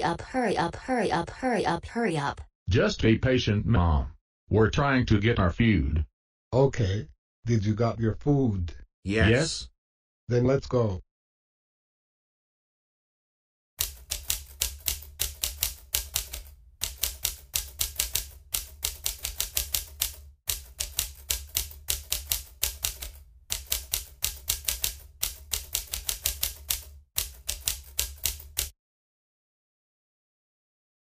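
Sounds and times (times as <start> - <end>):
typewriter key clacks: 13.8 - 28.7.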